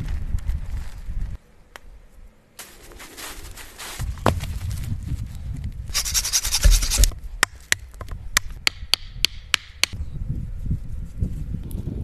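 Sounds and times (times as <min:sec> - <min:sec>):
rustle through dry leaves: 0:00.0 - 0:01.4, 0:02.6 - 0:07.0.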